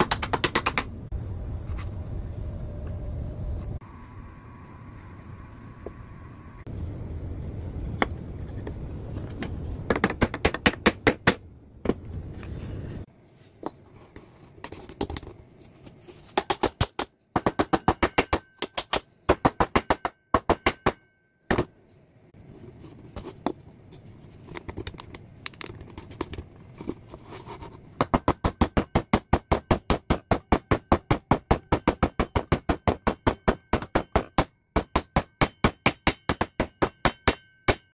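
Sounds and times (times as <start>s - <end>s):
low rumble: 0.9s - 9.9s.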